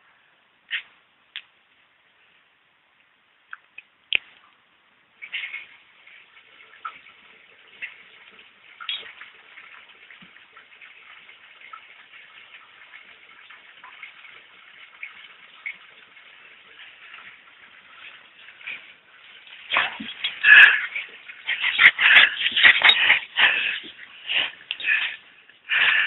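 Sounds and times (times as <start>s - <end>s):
faint steady hiss: 0.0s - 26.0s.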